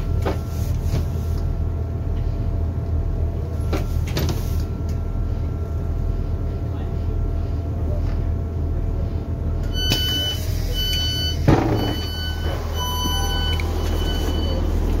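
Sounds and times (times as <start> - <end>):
train door sliding open: 0.0 - 1.5, 3.6 - 5.0, 9.7 - 15.0
diesel train engine hum: 0.0 - 15.0
door warning beeps: 9.6 - 15.0.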